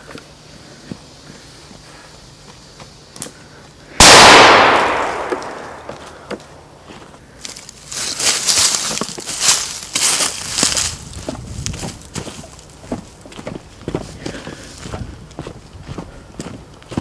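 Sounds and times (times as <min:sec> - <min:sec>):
firecracker bang: 0:04.0 - 0:06.2
footsteps crunching on ground: 0:04.0 - 0:17.0.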